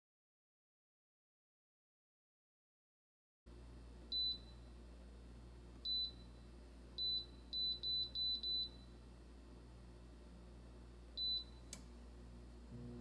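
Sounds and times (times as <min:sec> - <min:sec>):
faint low hum: 0:03.5 - 0:13.0.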